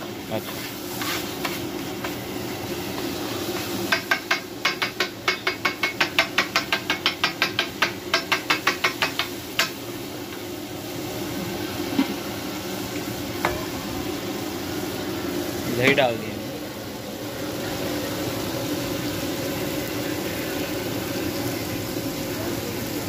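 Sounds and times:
food sizzling: 0.0 - 23.0
metal spatula tapping on griddle: 3.9 - 9.8.

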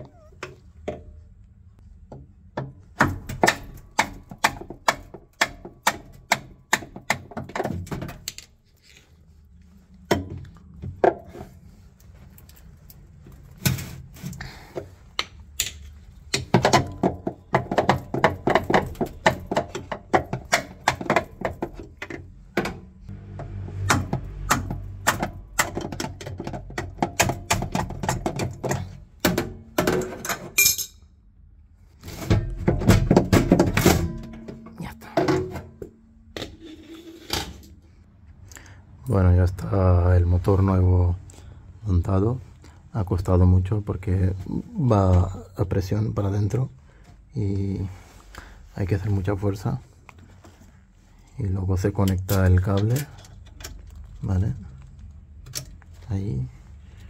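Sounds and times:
hammer striking metal chisel: 2.6 - 7.6.

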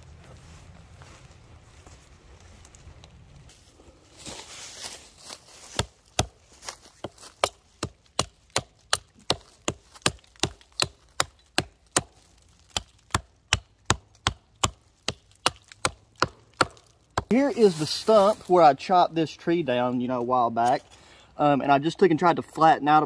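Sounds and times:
hatchet chopping wood: 5.6 - 17.3.

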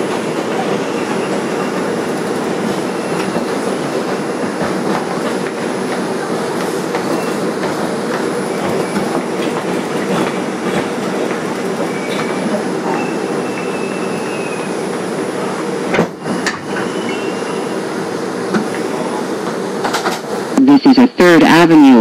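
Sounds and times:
clickety-clack over rail joints: 0.0 - 13.8, 18.5 - 20.3
train wheels rumbling on track: 0.0 - 20.6.

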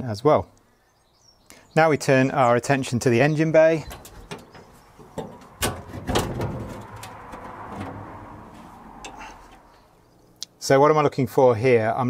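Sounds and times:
metal latch clicks and clunks: 3.8 - 9.6
metal panel scraping: 3.8 - 9.7.

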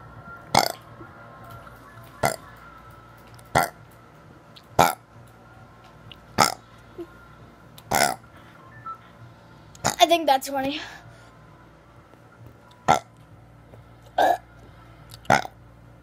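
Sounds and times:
boy burping: 7.9 - 8.2, 14.2 - 14.4.

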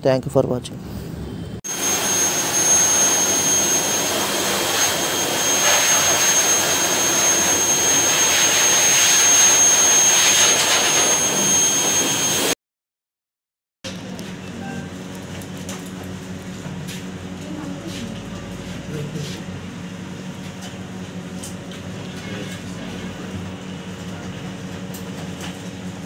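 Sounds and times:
blower dryer rushing air: 0.8 - 12.6.

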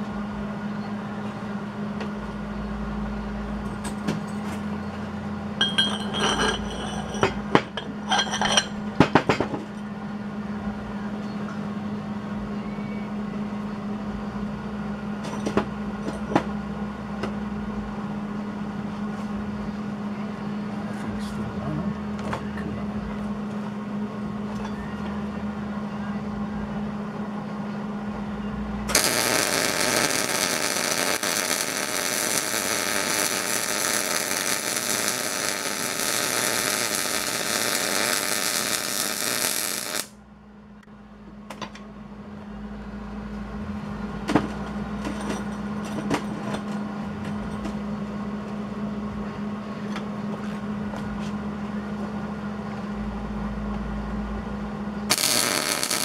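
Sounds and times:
steady machine hum: 0.0 - 56.0
welding arc buzzing: 5.6 - 8.9, 28.9 - 40.2, 55.1 - 56.0.

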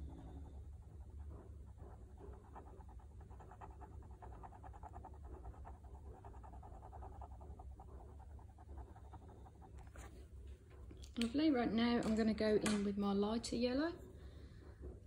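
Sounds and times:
pen tip scratching on paper: 2.2 - 10.1.

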